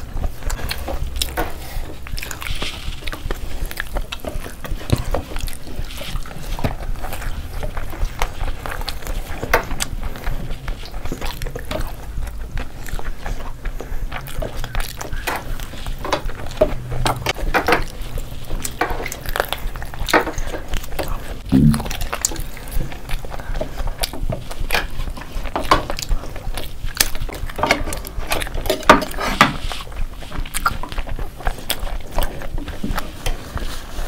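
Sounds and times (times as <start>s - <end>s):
wet chewing and lip smacks: 0.0s - 34.0s
low voice hum: 21.1s - 22.1s.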